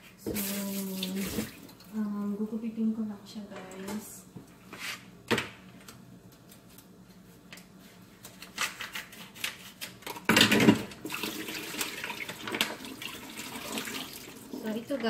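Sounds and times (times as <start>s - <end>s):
water splashing and running: 11.1s - 14.8s.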